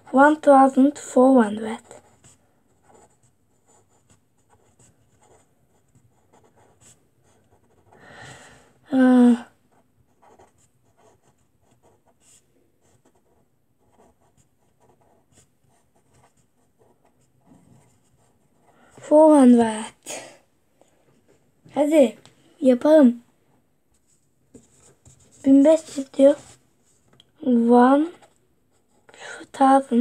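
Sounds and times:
person's voice: 0.0 - 1.9, 8.9 - 9.5, 19.0 - 20.4, 21.7 - 23.2, 25.4 - 26.5, 27.4 - 28.2, 29.2 - 30.0
pen scratching on paper: 1.4 - 8.0, 9.7 - 19.2, 24.6 - 26.6, 27.7 - 29.1.

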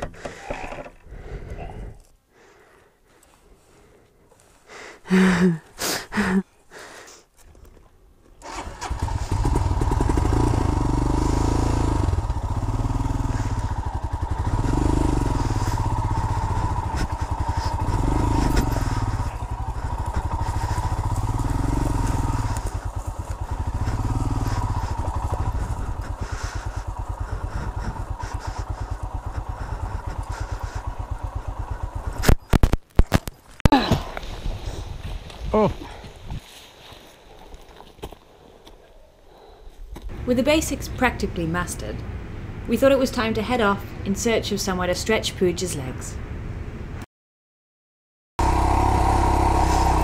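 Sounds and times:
motorcycle engine revving: 8.4 - 34.0, 48.4 - 50.0.

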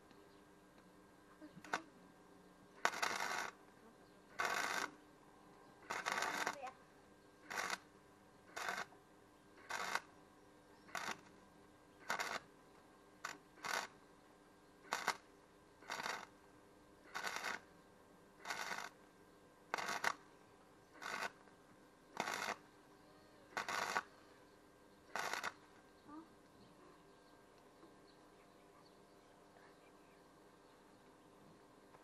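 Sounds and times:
faint steady hum: 0.0 - 32.0
welding arc crackling: 2.8 - 3.6, 4.3 - 4.9, 5.8 - 6.7, 7.4 - 7.9, 8.5 - 8.9, 9.6 - 10.1, 10.9 - 11.3, 12.0 - 12.5, 13.2 - 14.0, 14.9 - 15.2, 15.8 - 16.4, 17.1 - 17.6, 18.4 - 19.0, 19.7 - 20.2, 21.0 - 21.4, 22.2 - 22.6, 23.6 - 24.1, 25.1 - 25.6.

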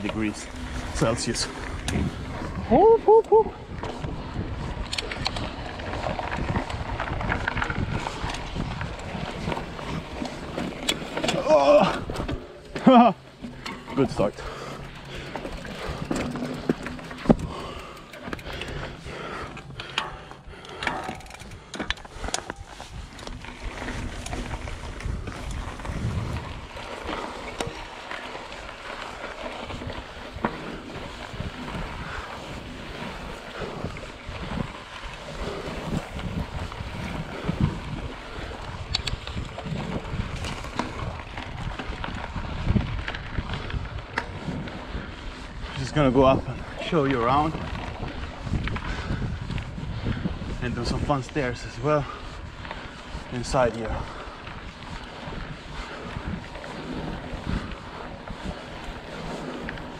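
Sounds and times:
wind buffeting microphone: 0.0 - 59.9
bike knocks and rattles: 3.7 - 45.1
tyres crunching on gravel: 3.8 - 59.9.

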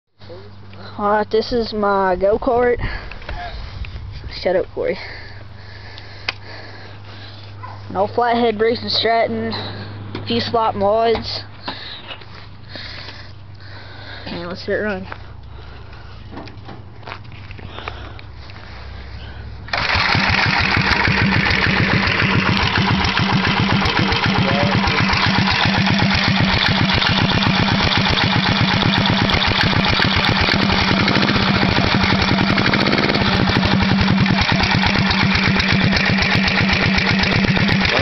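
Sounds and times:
single-cylinder engine running: 17.8 - 38.0.

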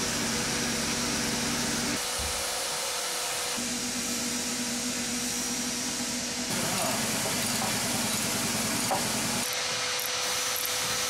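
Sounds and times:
low machine hum: 3.6 - 10.7.

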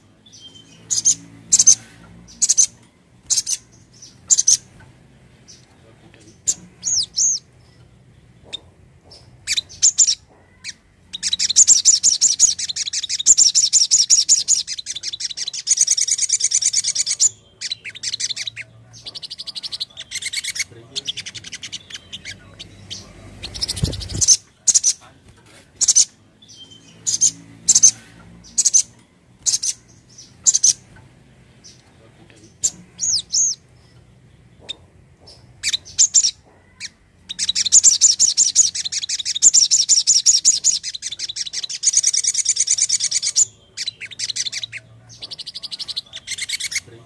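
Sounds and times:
bird singing high sharp notes: 0.2 - 4.7, 9.5 - 25.0.

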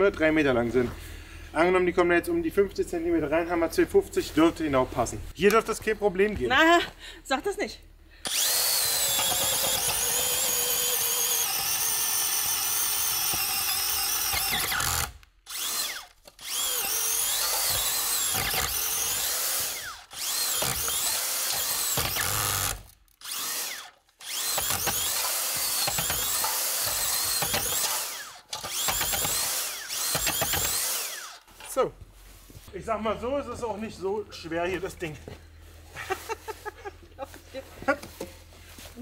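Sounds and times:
power drill whining under load: 8.2 - 31.5.

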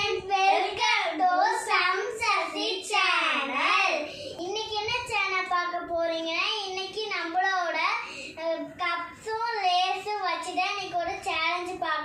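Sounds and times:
girl singing: 0.0 - 5.0.

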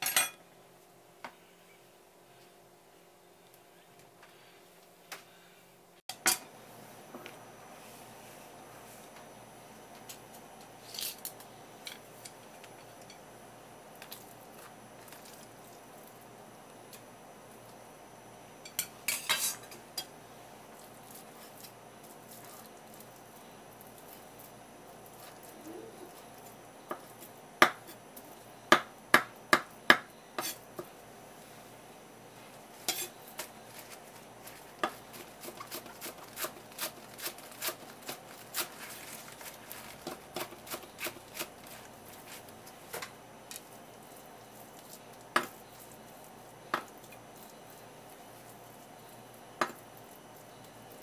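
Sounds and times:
knife chopping on wooden board: 26.9 - 27.9.

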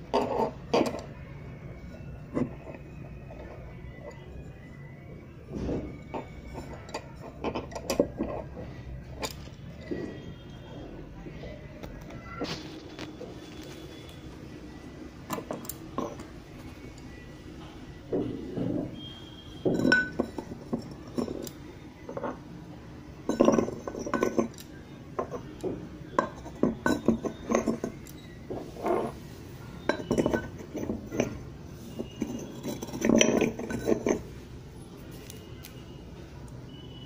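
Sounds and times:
clay cups knocking and clinking: 0.0 - 37.0.

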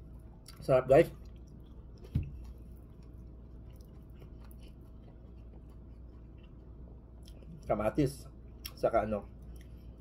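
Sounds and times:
person chewing food: 0.0 - 7.8, 8.4 - 10.0.

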